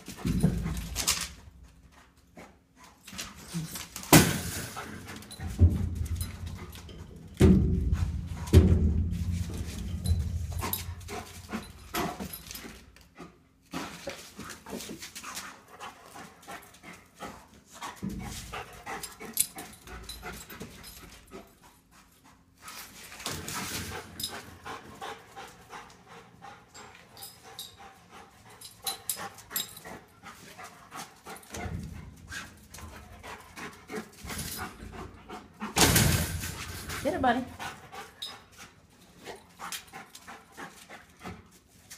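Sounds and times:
scrapes and knocks on metal: 4.2 - 12.6
dog panting: 10.0 - 41.9.

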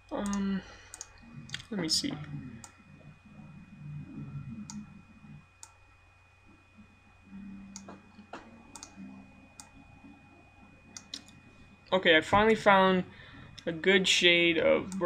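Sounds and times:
computer mouse clicks: 0.0 - 1.7, 7.7 - 9.0, 10.9 - 11.4
faint electrical hum: 0.0 - 15.0.

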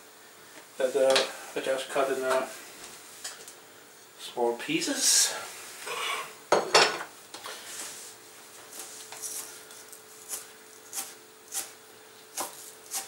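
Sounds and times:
knife chopping on plastic board: 12.3 - 13.0.

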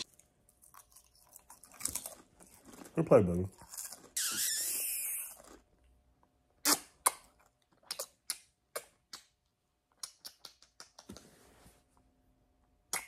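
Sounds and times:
kissing lip smacks: 6.6 - 11.3.

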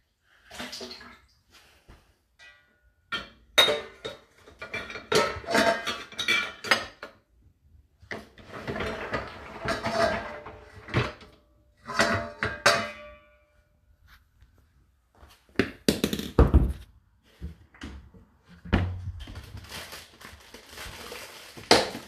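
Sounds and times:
metal pots and racks clattering: 2.4 - 7.3, 8.1 - 13.4.

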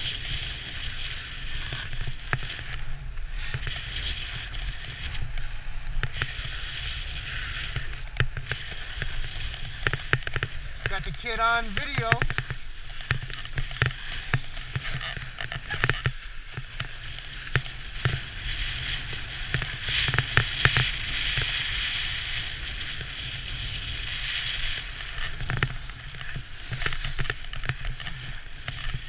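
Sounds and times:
edges scraping over snow: 0.0 - 29.0
wind rumble on microphone: 0.0 - 29.0.

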